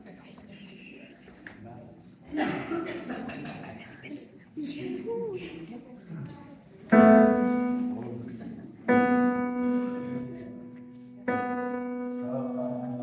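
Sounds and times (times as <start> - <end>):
piano playing sustained chords: 6.9 - 8.2, 8.9 - 13.0.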